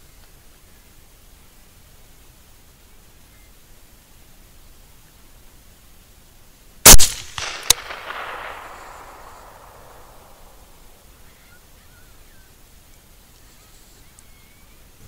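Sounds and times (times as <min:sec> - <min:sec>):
rifle shot echoing: 0:06.9 - 0:11.0
sharp crack: 0:06.9 - 0:11.2.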